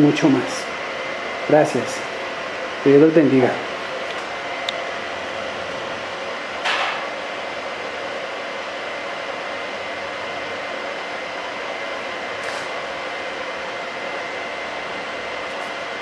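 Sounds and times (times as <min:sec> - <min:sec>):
whirring machine: 0:00.0 - 0:16.0
brief high hiss: 0:12.4 - 0:12.7.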